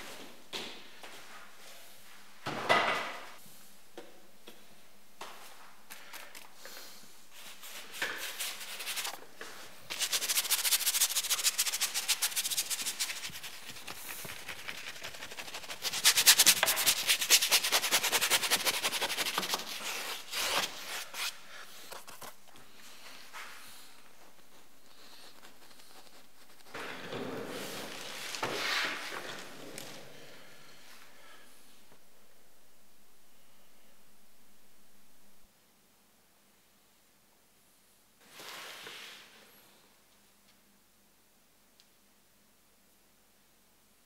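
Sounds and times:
paintbrush scrubbing canvas: 0:07.4 - 0:09.2, 0:09.9 - 0:22.4, 0:24.3 - 0:26.8.

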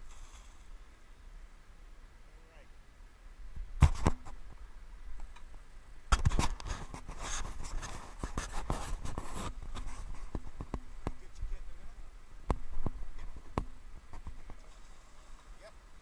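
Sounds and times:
scraping and rustling: 0:06.1 - 0:11.6.

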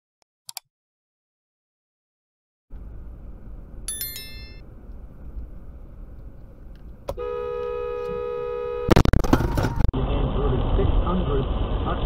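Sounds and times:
car road noise: 0:02.7 - 0:12.0
car horn: 0:07.1 - 0:09.8.

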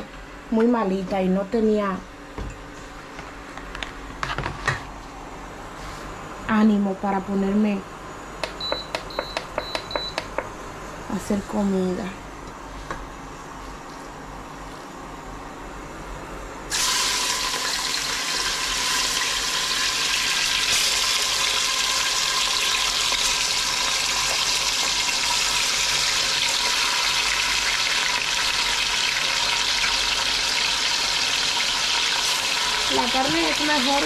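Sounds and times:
meat sizzling in hot oil: 0:16.7 - 0:34.0.

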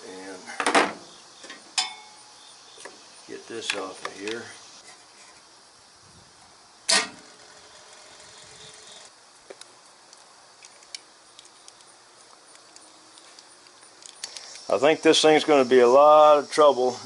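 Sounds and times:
faint tool handling clicks: 0:03.6 - 0:04.5, 0:09.5 - 0:14.7.

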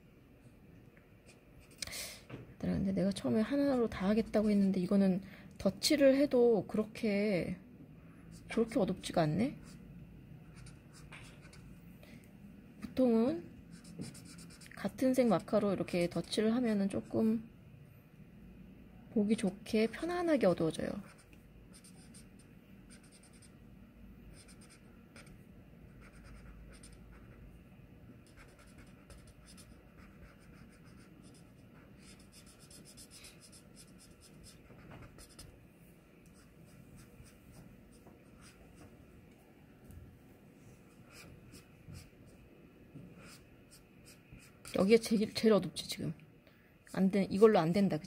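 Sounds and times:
marker scratching on paper: 0:10.5 - 0:11.7, 0:13.7 - 0:16.3, 0:21.0 - 0:23.6, 0:24.3 - 0:25.4, 0:26.0 - 0:27.4, 0:28.2 - 0:35.5, 0:36.3 - 0:38.9, 0:41.0 - 0:42.1, 0:43.2 - 0:45.1.

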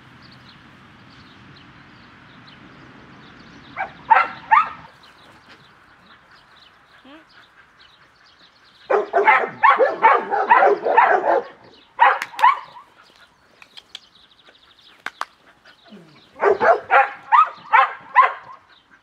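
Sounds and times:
dog barking: 0:03.8 - 0:04.9, 0:08.9 - 0:12.9, 0:15.9 - 0:18.7.

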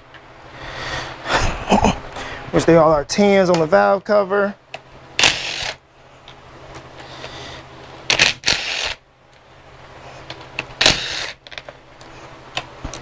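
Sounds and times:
ratchet wrench clicking: 0:05.2 - 0:05.8, 0:08.1 - 0:09.0.

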